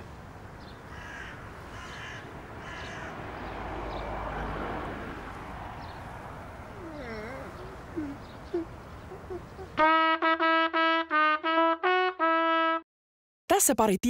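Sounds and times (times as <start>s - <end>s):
low outdoor hush: 0.0s - 9.8s
crows cawing: 0.9s - 3.3s.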